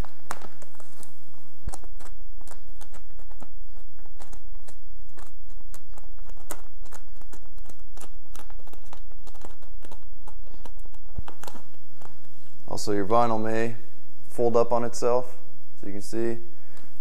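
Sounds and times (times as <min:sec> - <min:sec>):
plastic film crinkling: 0:00.0 - 0:12.7.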